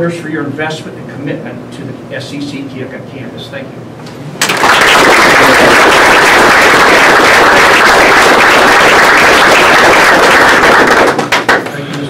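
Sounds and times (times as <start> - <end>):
audience applauding: 4.4 - 11.8.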